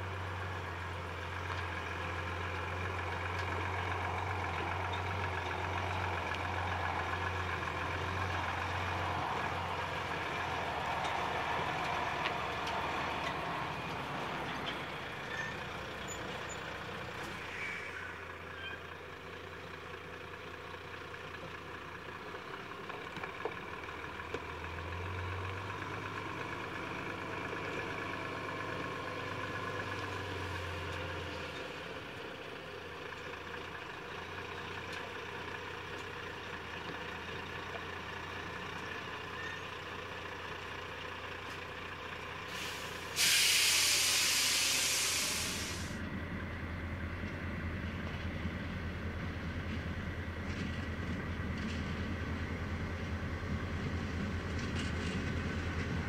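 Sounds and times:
diesel truck engine idling: 0.0s - 56.0s
air brake hiss: 42.5s - 46.0s.

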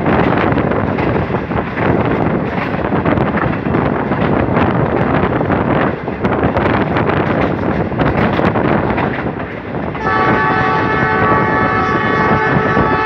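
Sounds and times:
train running rumble: 0.0s - 13.0s
wheels clicking on track: 0.0s - 13.0s
wind buffeting microphone: 0.0s - 13.0s
train horn chord: 10.0s - 13.0s.

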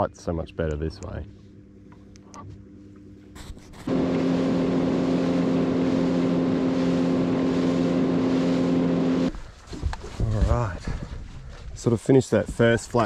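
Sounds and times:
outboard motor running: 3.4s - 9.4s
wind: 3.8s - 13.0s
water rushing: 3.9s - 9.3s.

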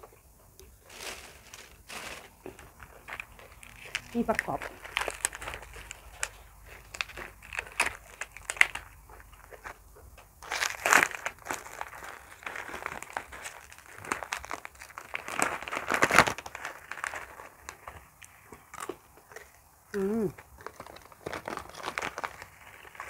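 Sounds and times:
plastic bags crinkling: 0.7s - 9.7s, 10.4s - 18.1s, 20.6s - 23.0s
packet being opened: 10.4s - 17.8s, 20.7s - 23.0s.

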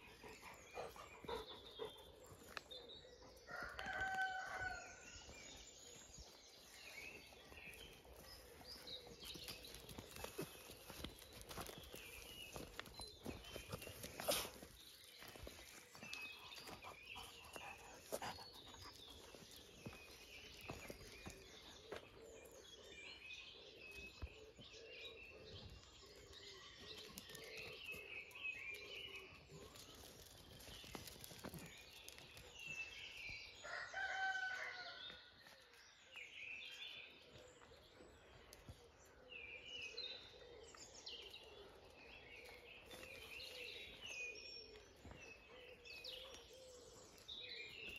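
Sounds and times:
birds singing: 0.0s - 47.9s
footsteps on gravel: 7.2s - 16.8s, 19.1s - 22.1s.

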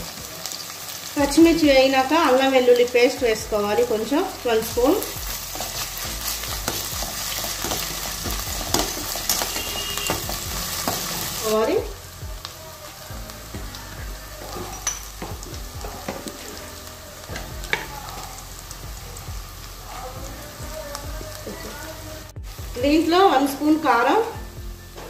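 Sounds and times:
food sizzling in hot oil: 0.0s - 25.0s
metal spatula scraping pan: 6.7s - 11.4s.

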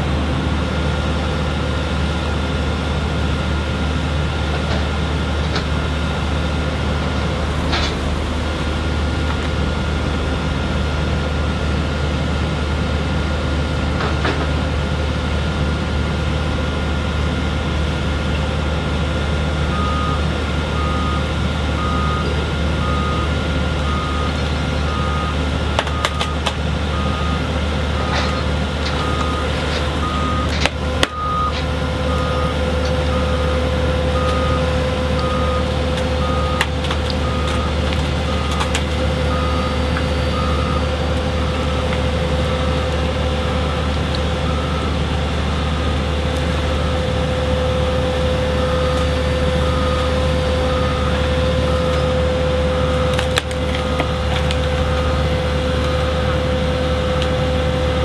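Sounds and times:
heavy machinery humming: 0.0s - 58.0s
backup alarm beeping: 20.8s - 27.4s, 29.0s - 30.5s, 31.1s - 33.5s, 34.2s - 38.7s, 39.3s - 42.9s, 47.8s - 53.2s.

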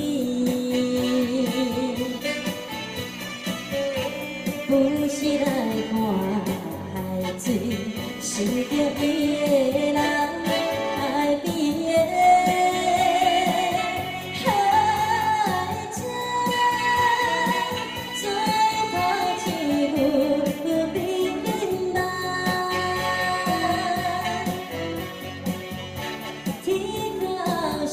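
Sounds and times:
electronic keyboard accompaniment: 0.0s - 27.9s
saxophone melody: 0.6s - 11.4s, 12.1s - 15.4s, 21.1s - 27.0s.

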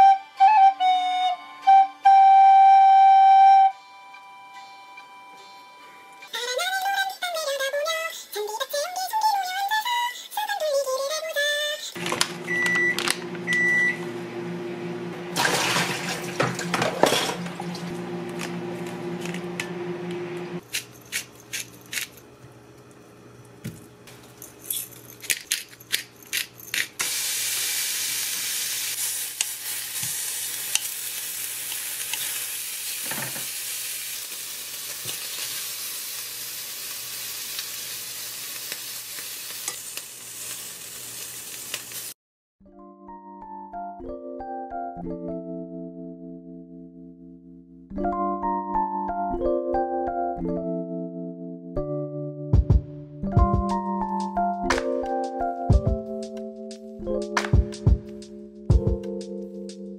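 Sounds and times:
handling noise: 12.0s - 13.7s, 16.3s - 22.9s
steady low hum: 16.5s - 25.1s
utensils and dishes clicking: 20.6s - 23.0s, 24.1s - 27.1s
steak sizzling in a frying pan: 27.0s - 42.2s.

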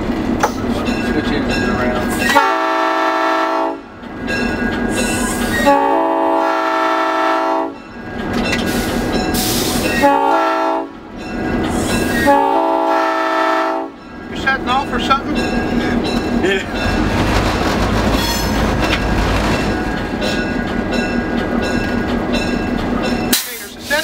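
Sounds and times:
locomotive rumbling on rails: 0.0s - 24.0s
locomotive air horn blasts: 2.3s - 3.9s, 5.5s - 7.8s, 10.0s - 11.0s, 12.2s - 14.0s.

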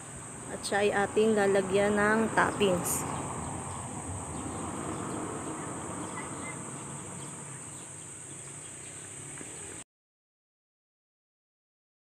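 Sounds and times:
insects chirring: 0.0s - 9.8s
low background hiss: 0.0s - 9.8s.

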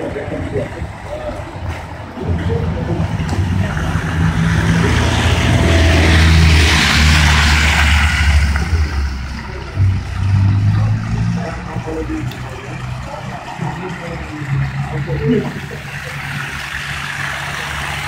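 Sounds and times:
minibus engine hum: 0.0s - 18.0s
tyres hissing through slush: 15.2s - 18.0s.

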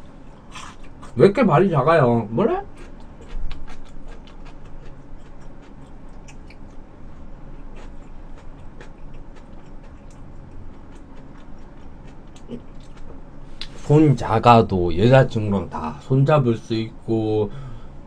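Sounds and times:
mouth chewing clicks and smacks: 2.7s - 6.8s, 7.6s - 13.7s.

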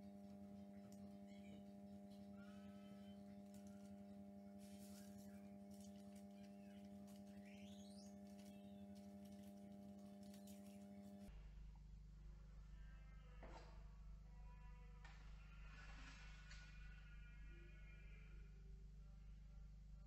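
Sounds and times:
faint low hum: 0.0s - 20.0s
paper rustling and clicking: 4.6s - 11.2s.

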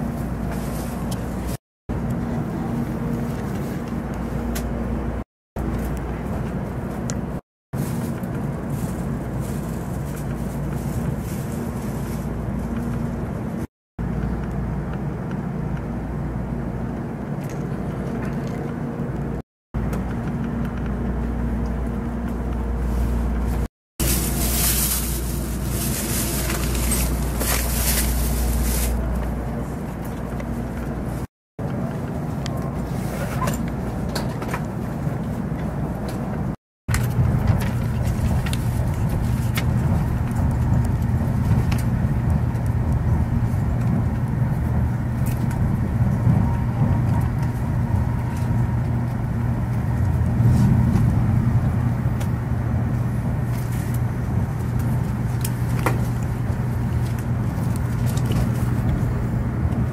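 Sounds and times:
train cabin hum and rumble: 0.0s - 59.9s.

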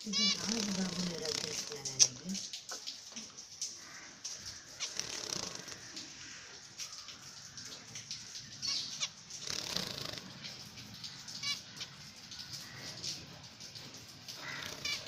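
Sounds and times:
bird trilling: 0.0s - 2.1s
wings fluttering: 0.0s - 3.2s, 3.9s - 6.0s, 8.2s - 13.1s, 14.3s - 15.0s.

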